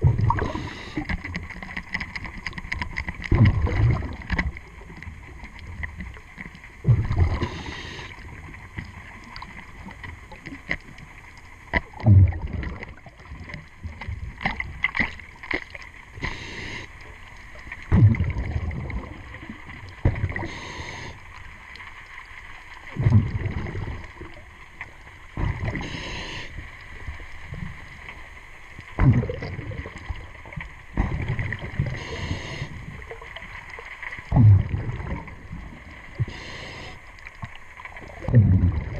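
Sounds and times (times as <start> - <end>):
exhaled bubbles rumbling: 0.0 - 21.8, 22.6 - 38.9
hissing regulator breath: 7.4 - 8.2, 16.2 - 16.9, 20.4 - 21.2, 25.7 - 26.6, 31.9 - 32.8, 36.2 - 37.0.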